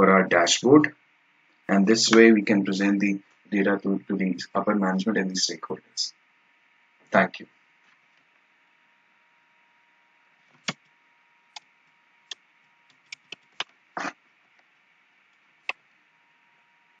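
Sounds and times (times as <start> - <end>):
faint steady hiss: 0.0 - 17.0
computer mouse clicks: 12.3 - 13.8.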